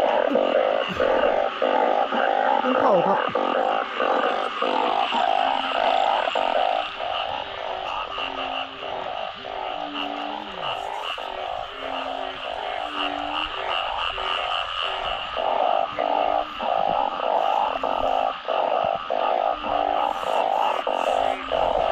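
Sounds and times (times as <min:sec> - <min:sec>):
chorus of frogs calling: 0:00.0 - 0:21.9
low drawn-out frog croaks: 0:00.0 - 0:21.9.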